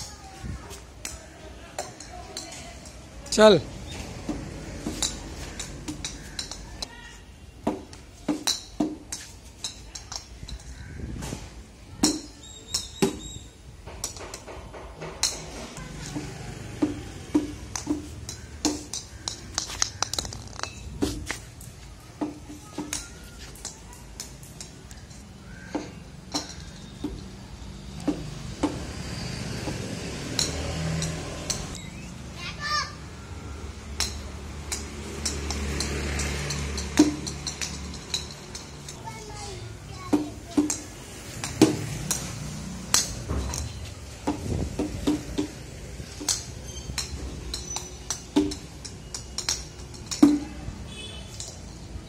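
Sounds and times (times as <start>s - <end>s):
plastic bat and ball clicks: 4.2s - 6.9s, 7.6s - 10.8s, 12.0s - 13.3s, 14.0s - 27.3s, 33.9s - 39.0s, 40.1s - 50.6s.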